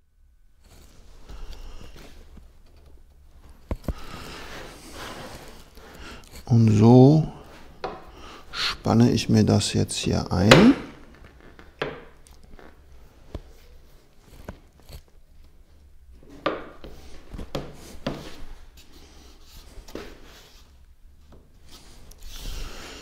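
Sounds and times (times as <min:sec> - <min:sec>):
panels rubbing: 0:03.9 - 0:08.8.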